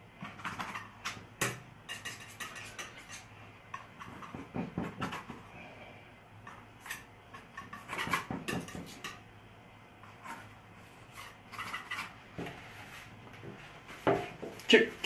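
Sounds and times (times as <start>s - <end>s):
paintbrush scraping and clicking: 1.9s - 4.4s.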